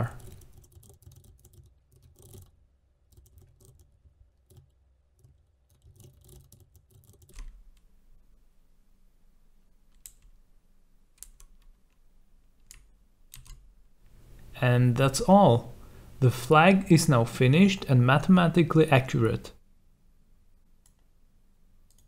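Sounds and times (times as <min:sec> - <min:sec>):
computer keyboard typing: 0:00.0 - 0:07.6, 0:11.2 - 0:12.0, 0:12.6 - 0:13.6.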